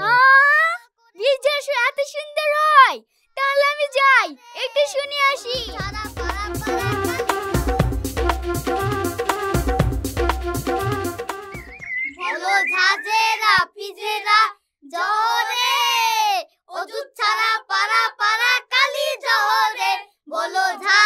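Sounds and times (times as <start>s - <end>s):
boy singing unaccompanied: 4.5s - 7.7s, 12.2s - 21.0s
drum-backed music: 5.6s - 12.0s.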